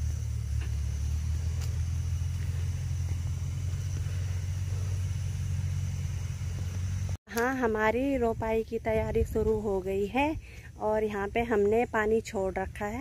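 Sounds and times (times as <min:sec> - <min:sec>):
tractor diesel engine idling: 0:00.0 - 0:07.2.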